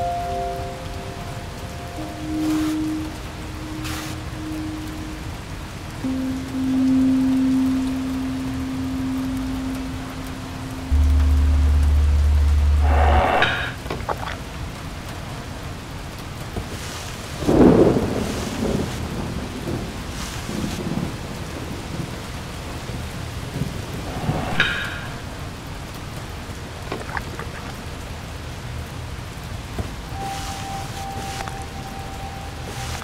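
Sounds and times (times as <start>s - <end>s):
steady tone: 0.0s - 14.3s, 23.9s - 25.6s, 30.1s - 33.0s
steady rain: 0.0s - 33.0s
short pitched sound: 10.9s - 13.9s
thunder rolling: 17.3s - 27.7s.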